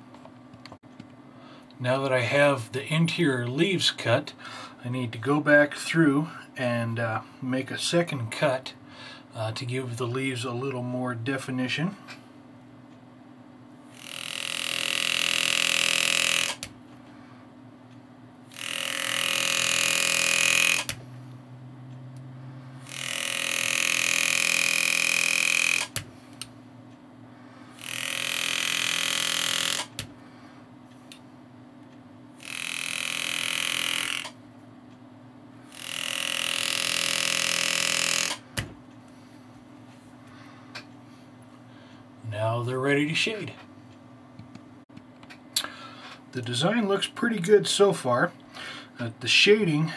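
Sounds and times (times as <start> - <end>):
power graver cutting steel: 14.0 - 16.7, 18.5 - 21.0, 22.8 - 25.9, 27.8 - 29.9, 35.7 - 38.4.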